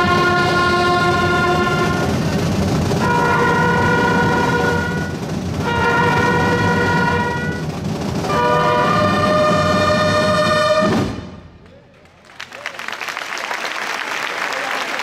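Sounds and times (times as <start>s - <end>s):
brass band holding chords: 0.0s - 11.4s.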